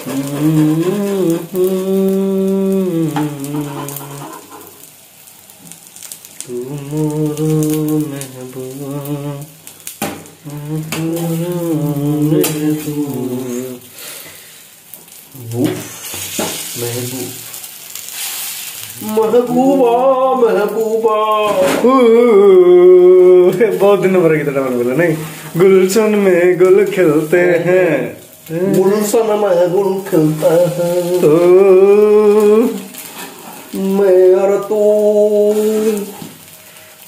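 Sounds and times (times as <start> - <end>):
man humming a tune: 0.0 - 4.8, 6.4 - 9.6, 10.4 - 13.9, 15.4 - 16.2, 19.0 - 32.9, 33.7 - 36.3
omelette sizzling in a frying pan: 0.0 - 37.0.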